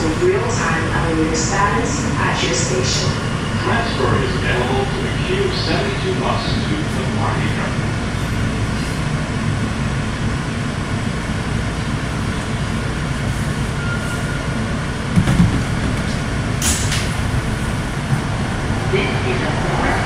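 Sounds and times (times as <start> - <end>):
subway car low rumble: 0.0 - 20.0
knock: 15.2 - 16.0.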